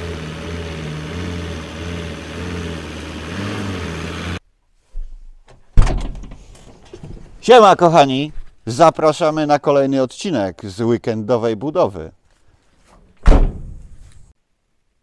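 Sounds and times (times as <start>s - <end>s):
van engine running at low revs: 0.0s - 4.4s
loud thump: 13.2s - 14.0s.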